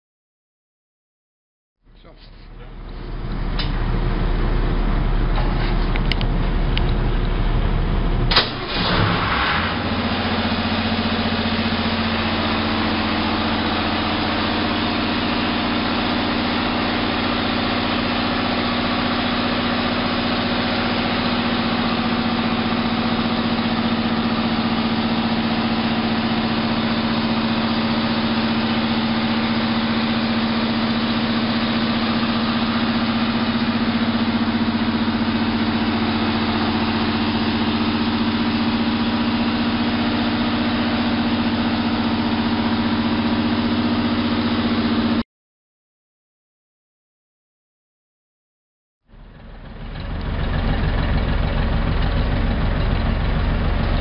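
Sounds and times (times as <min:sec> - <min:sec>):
diesel generator running: 0:01.9 - 0:45.2, 0:49.1 - 0:54.0.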